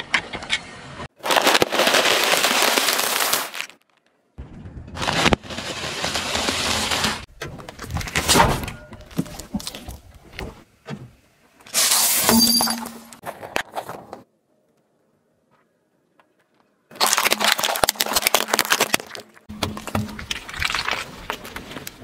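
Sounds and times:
objects crunching under car tyre: 1.1s - 4.2s, 4.8s - 10.6s, 16.9s - 22.0s.

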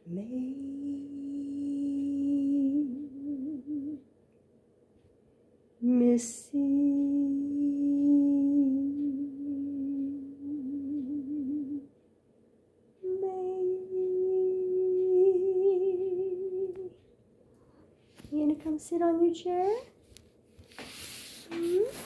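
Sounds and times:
person humming: 0.0s - 4.0s, 6.1s - 11.9s, 13.0s - 17.0s, 21.4s - 22.0s.

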